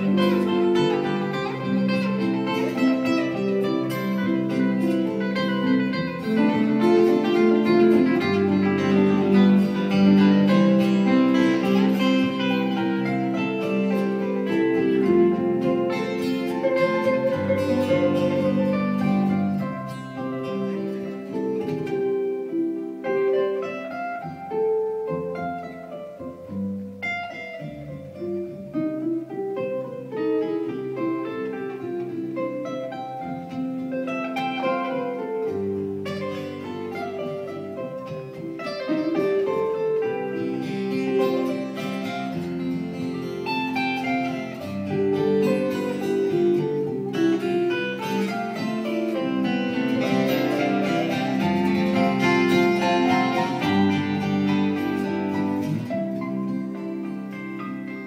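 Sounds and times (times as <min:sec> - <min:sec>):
acoustic guitars playing together: 0:00.0 - 0:58.0.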